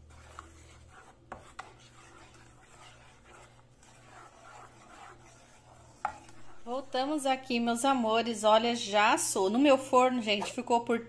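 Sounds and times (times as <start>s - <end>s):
wooden spoon scraping a pot: 0.0s - 8.1s.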